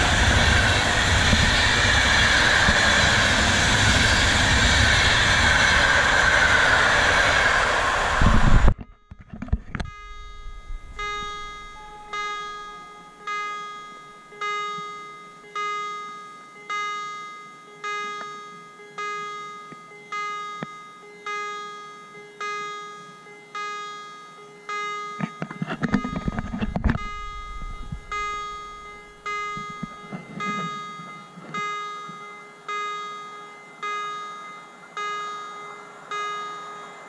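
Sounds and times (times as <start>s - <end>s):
passing train rushing: 0.0s - 8.8s, 10.0s - 16.2s, 24.7s - 37.0s
level crossing warning bell: 8.9s - 37.0s.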